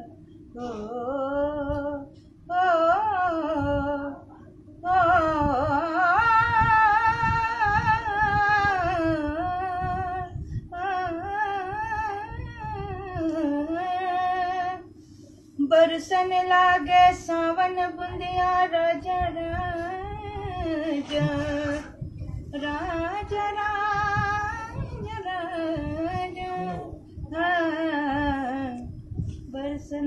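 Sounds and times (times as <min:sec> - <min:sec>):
elderly woman singing unaccompanied: 0:04.8 - 0:14.8, 0:15.6 - 0:21.9, 0:22.6 - 0:28.9, 0:29.5 - 0:30.0.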